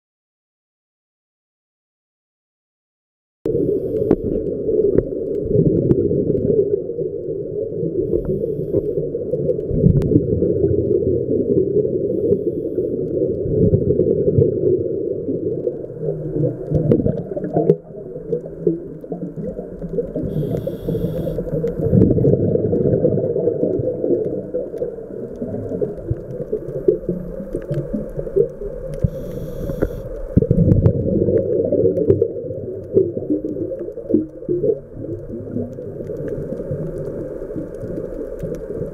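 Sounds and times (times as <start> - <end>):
muffled underwater rumble: 3.5 - 38.9
small clicks: 15.6 - 22.9, 23.6 - 38.9
brief hiss: 20.3 - 21.6, 29.0 - 30.1.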